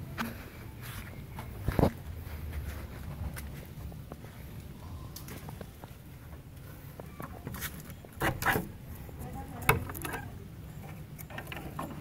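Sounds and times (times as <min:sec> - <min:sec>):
wooden door and latch clattering: 0:08.2 - 0:08.8, 0:09.5 - 0:12.0.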